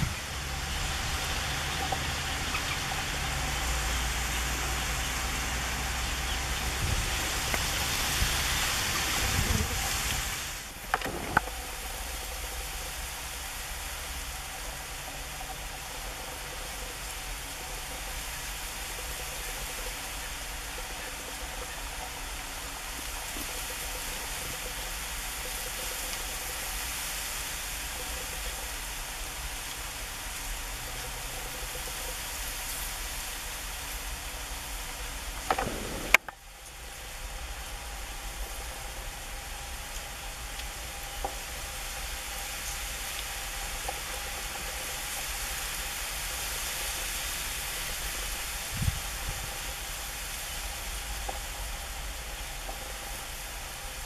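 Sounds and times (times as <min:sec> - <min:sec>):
outdoor background hiss: 0:00.0 - 0:54.0
sharp clicks: 0:35.4 - 0:36.7.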